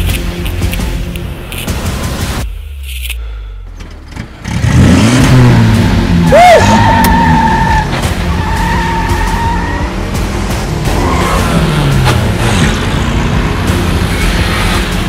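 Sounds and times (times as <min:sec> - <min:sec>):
car engine revving: 0:03.8 - 0:15.0
tyres squealing: 0:06.2 - 0:10.0.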